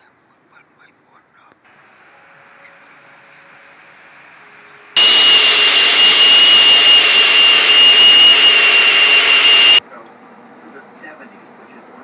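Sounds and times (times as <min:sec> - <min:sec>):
blender whirring: 0:05.0 - 0:09.8.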